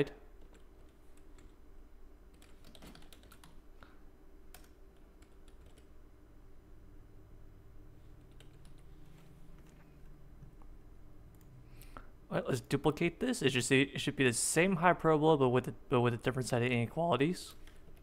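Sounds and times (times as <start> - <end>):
computer keyboard keystrokes: 2.3 - 3.6, 4.5 - 5.9, 8.2 - 8.8.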